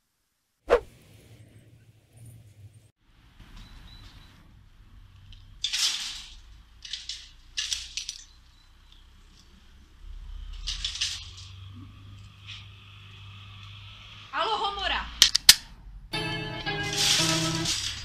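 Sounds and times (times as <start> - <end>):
shopping trolley clinking and rattling: 16.2 - 18.0.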